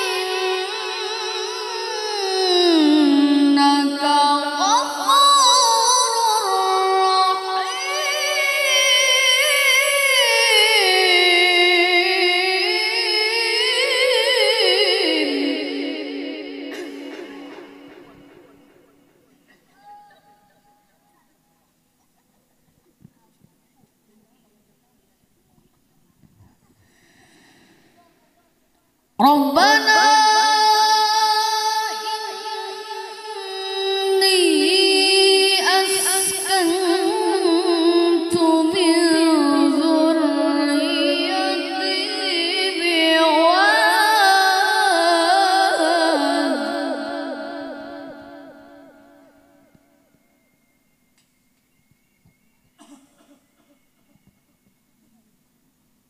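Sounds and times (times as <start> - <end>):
boy reciting melodically into microphone: 0.0 - 18.8, 29.2 - 49.4.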